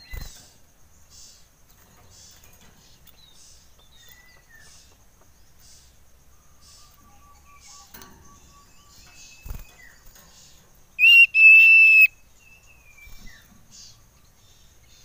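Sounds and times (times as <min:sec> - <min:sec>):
soft whistled bird notes: 0:06.4 - 0:10.2, 0:11.0 - 0:15.0
bird whistled call: 0:11.0 - 0:12.2.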